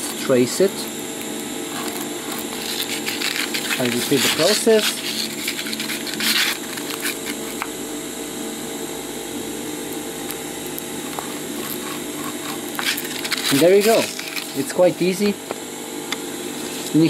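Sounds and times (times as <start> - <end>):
steady low hum: 0.0 - 17.0
pen scraping on stencil: 1.7 - 7.6, 11.0 - 14.6.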